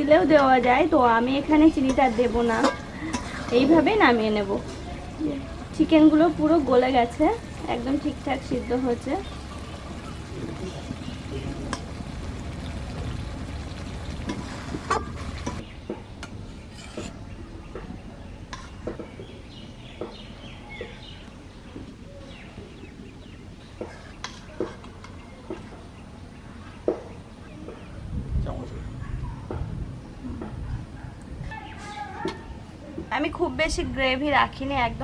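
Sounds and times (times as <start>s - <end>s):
metal utensils clinking on cookware: 1.7s - 5.0s.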